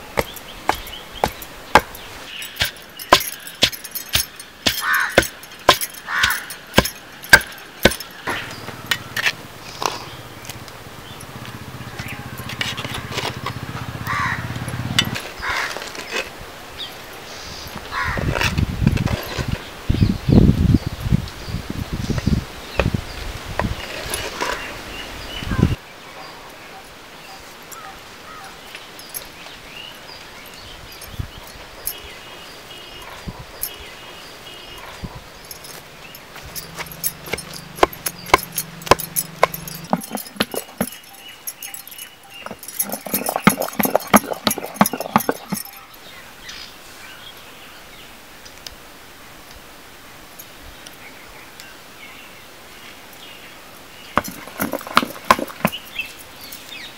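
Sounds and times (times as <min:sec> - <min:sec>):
pestle pounding in stone mortar: 0:00.0 - 0:08.1, 0:36.6 - 0:45.8, 0:54.2 - 0:55.9
steady background hiss: 0:00.0 - 0:12.4, 0:13.4 - 0:18.0, 0:19.6 - 0:37.8, 0:45.8 - 0:54.2
small birds chirping: 0:00.0 - 0:18.6, 0:19.2 - 0:48.6, 0:50.4 - 0:56.9
light clinks: 0:00.1 - 0:09.4, 0:14.5 - 0:15.4, 0:28.7 - 0:46.6, 0:53.1 - 0:56.9
crows cawing: 0:04.7 - 0:05.3, 0:06.0 - 0:06.6, 0:12.2 - 0:14.8, 0:15.4 - 0:15.8, 0:17.9 - 0:18.3.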